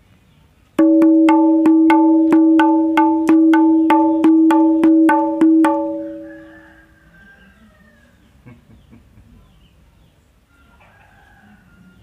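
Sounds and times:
small hand drum strokes ringing: 0.8 - 6.6.

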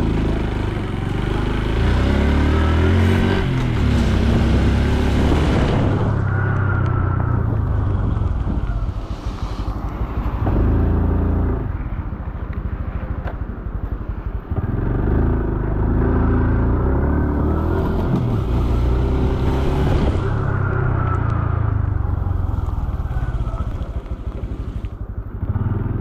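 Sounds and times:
motorcycle engine running: 0.0 - 26.0.

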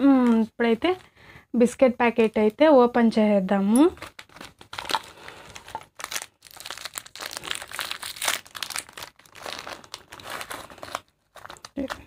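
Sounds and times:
plastic wrapper crinkling: 3.7 - 12.0.

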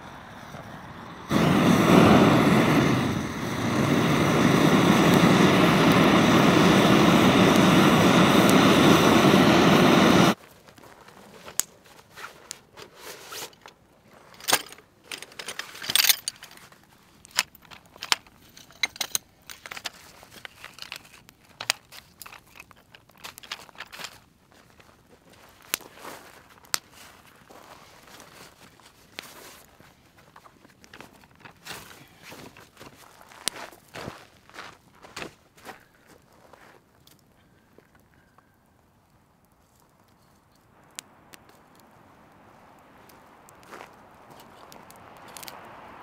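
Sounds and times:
gas torch hissing: 0.0 - 10.4
campfire crackling: 0.0 - 14.3, 19.3 - 46.0
footsteps on gravel: 23.8 - 36.9.

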